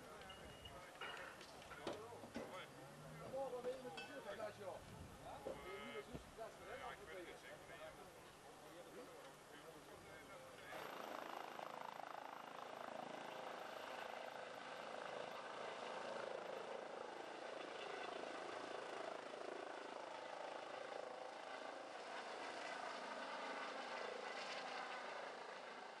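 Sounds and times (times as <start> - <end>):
helicopter rotor and turbine: 9.6 - 26.0.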